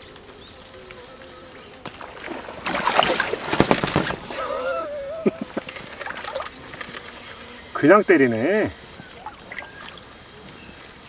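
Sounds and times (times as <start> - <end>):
water splashing hard: 1.9 - 6.8, 9.1 - 10.1.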